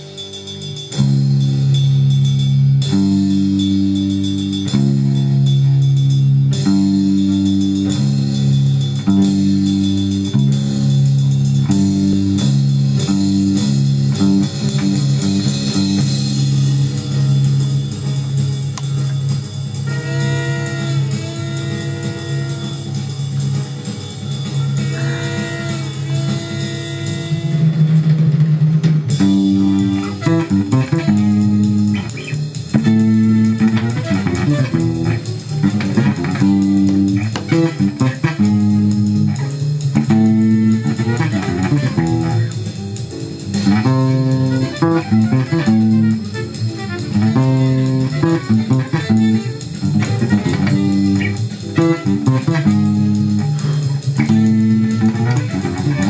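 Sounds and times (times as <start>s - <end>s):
electric bass plucked notes: 0.0s - 56.0s.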